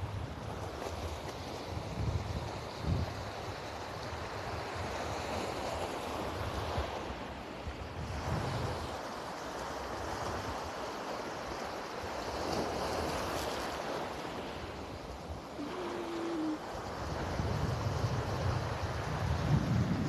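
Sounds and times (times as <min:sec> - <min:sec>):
wind rumbling on microphone: 0:00.0 - 0:05.2, 0:07.8 - 0:08.9, 0:14.3 - 0:20.0
surf washing over rocks and sand: 0:00.0 - 0:20.0.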